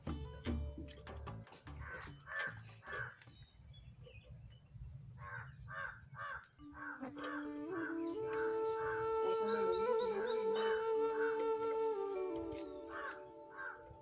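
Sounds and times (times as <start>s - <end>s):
soft music with held notes: 0.0s - 3.4s, 6.6s - 14.0s
crow cawing: 1.8s - 3.2s, 5.2s - 7.5s, 12.9s - 13.8s.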